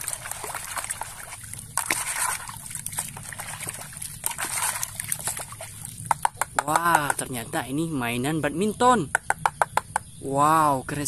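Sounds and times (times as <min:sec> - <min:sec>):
water splashing in a bucket: 0:00.0 - 0:07.4.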